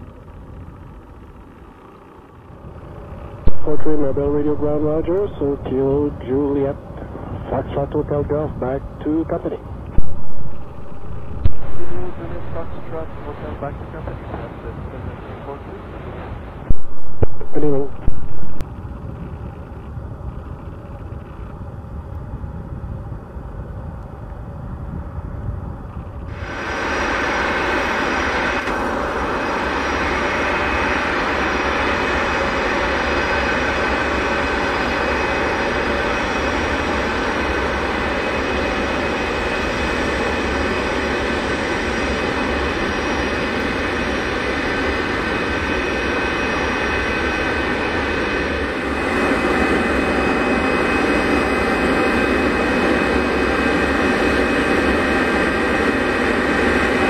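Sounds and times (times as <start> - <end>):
jet engines whining: 0.0 - 18.8, 26.2 - 57.0.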